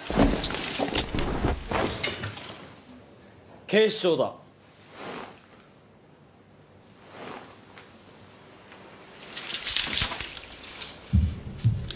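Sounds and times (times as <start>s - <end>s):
clothing rustling in scuffle: 0.0s - 2.7s.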